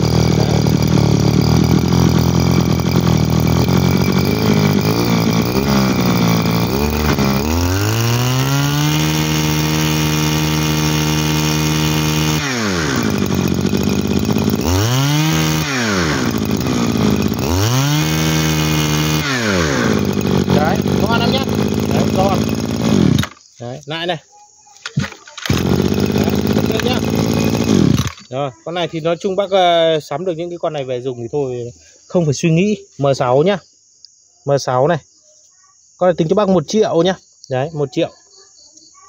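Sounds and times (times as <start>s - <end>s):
brush cutter engine revving: 0.0s - 23.5s, 24.9s - 28.4s.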